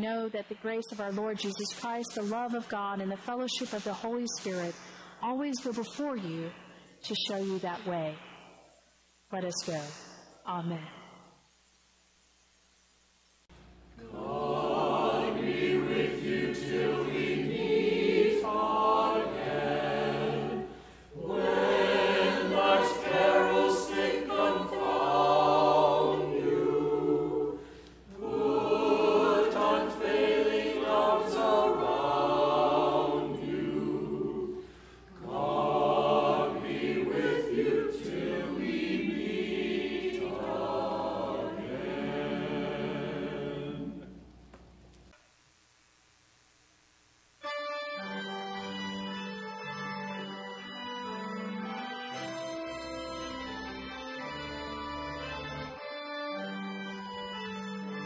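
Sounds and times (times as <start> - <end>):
choir singing: 14.0 - 44.2.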